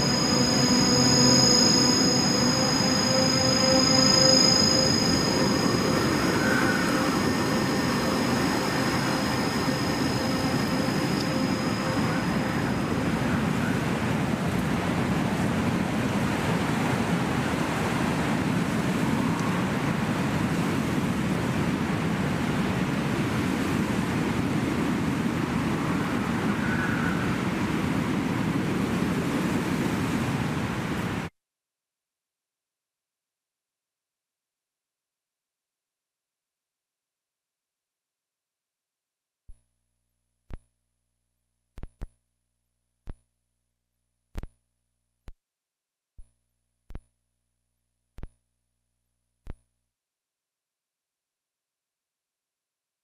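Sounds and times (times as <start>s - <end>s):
held synth notes: 0.0s - 15.7s
steady rushing noise: 0.0s - 31.3s.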